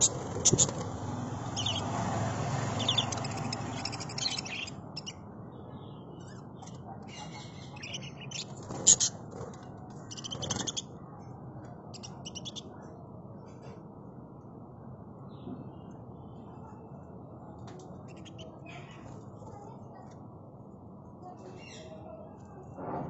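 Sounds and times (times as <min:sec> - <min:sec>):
budgerigars chirping: 0:00.0 - 0:02.0, 0:02.6 - 0:05.2, 0:06.6 - 0:09.2, 0:10.1 - 0:10.9, 0:12.0 - 0:12.6.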